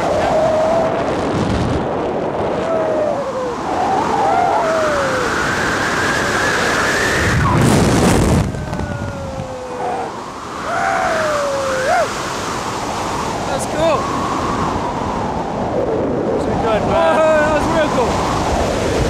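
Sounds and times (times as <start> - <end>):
wind rushing over microphone: 0.0 - 19.0
person whooping: 2.6 - 5.5, 8.5 - 12.2.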